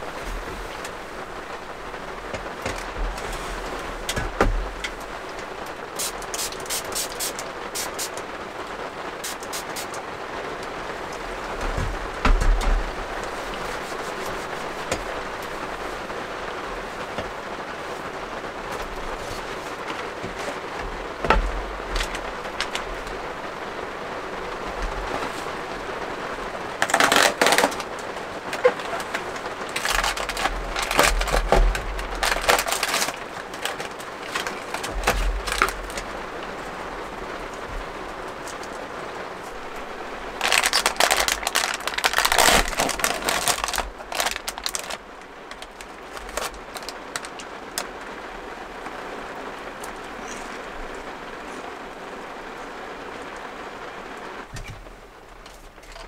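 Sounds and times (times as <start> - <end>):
rain pattering on roof: 0.0 - 56.0
cardboard box and foil bag crinkling: 26.8 - 36.2, 40.4 - 47.9.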